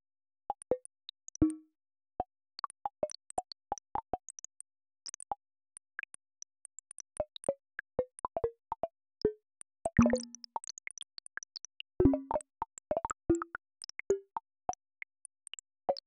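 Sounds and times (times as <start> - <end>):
synthetic blips at varied pitches: 1.4 - 1.6, 10.0 - 10.5, 12.0 - 14.4.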